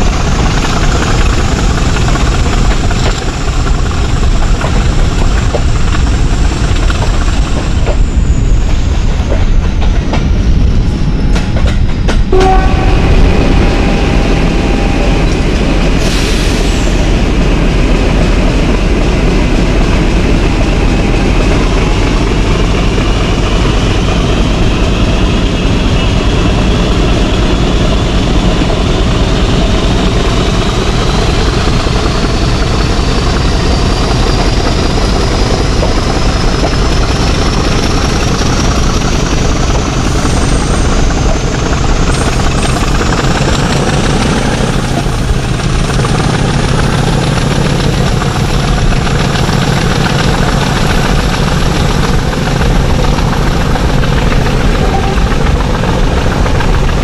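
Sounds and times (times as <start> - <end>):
diesel locomotive engine drone: 0.0 - 57.0
high whine rising in pitch: 6.2 - 49.1.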